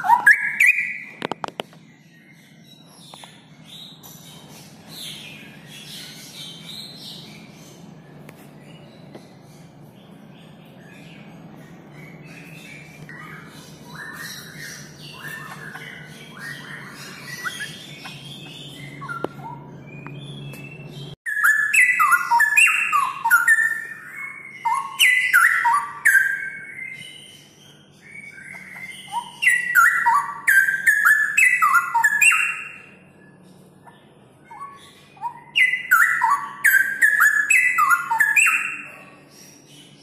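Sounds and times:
bird singing whistled notes: 0:00.0 - 0:01.3, 0:10.2 - 0:33.5, 0:34.4 - 0:40.0.

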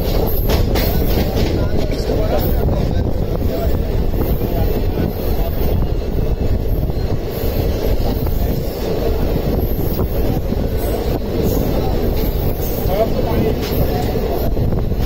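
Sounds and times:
train wheels rumbling on rail: 0:00.0 - 0:15.0.

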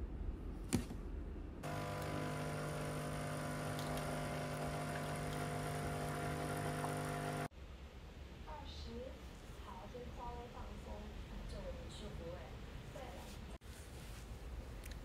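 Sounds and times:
coffee machine pump humming: 0:01.6 - 0:07.5.

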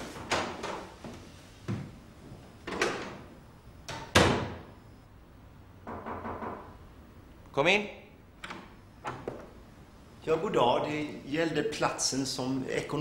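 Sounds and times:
wooden door clicks and knocks: 0:05.8 - 0:06.8.

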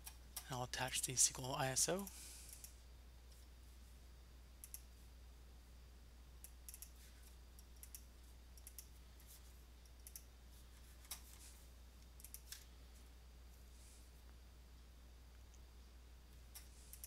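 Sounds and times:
low steady hum: 0:00.0 - 0:17.0
computer mouse clicks: 0:04.6 - 0:04.9, 0:06.4 - 0:09.0, 0:09.9 - 0:10.3, 0:12.1 - 0:12.7, 0:16.5 - 0:17.0.

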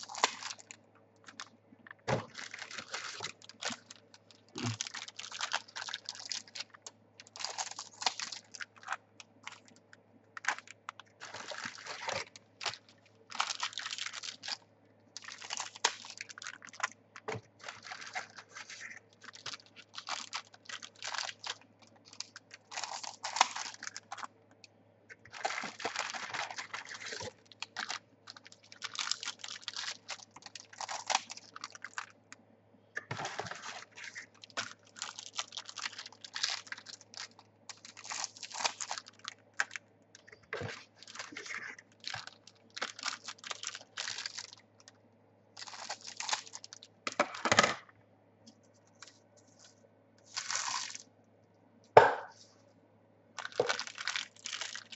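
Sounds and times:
card packets tearing: 0:17.6 - 0:24.2, 0:25.3 - 0:32.0, 0:33.1 - 0:39.3, 0:50.3 - 0:51.0.

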